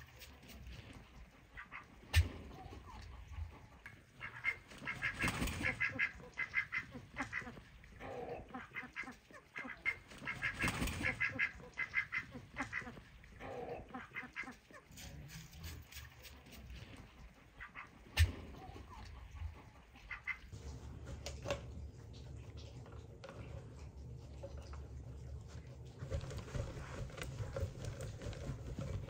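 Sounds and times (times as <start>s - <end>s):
geese calling: 1.3s - 14.8s, 17.4s - 20.5s.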